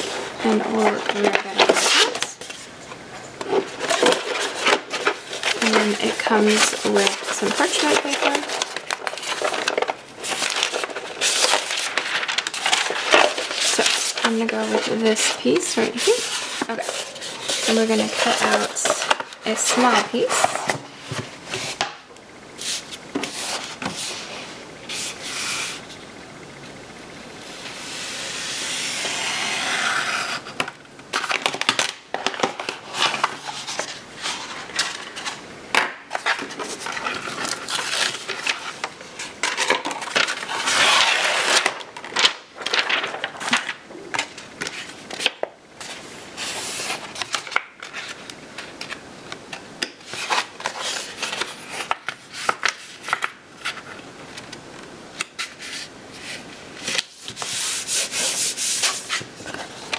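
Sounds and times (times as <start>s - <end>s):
sheet rustling on plastic mat: 0.0s - 2.8s, 3.4s - 21.9s, 31.2s - 49.0s.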